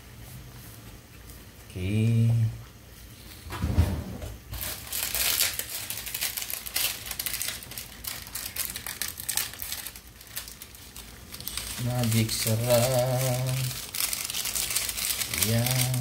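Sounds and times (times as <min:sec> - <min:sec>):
plastic sachet crinkling: 0:04.6 - 0:16.0.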